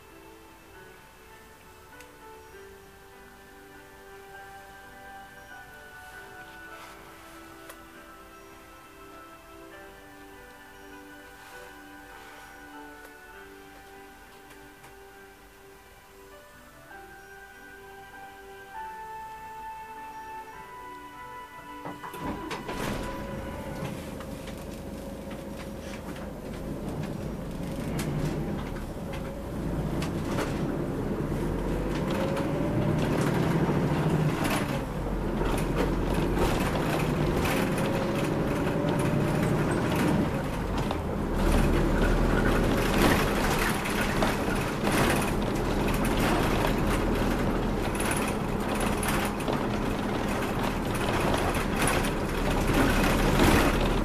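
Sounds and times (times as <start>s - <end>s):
bus engine rumble: 0.0s - 15.6s, 16.9s - 54.0s
road noise: 0.0s - 54.0s
drivetrain whine: 21.8s - 54.0s
cabin rattles: 21.9s - 54.0s.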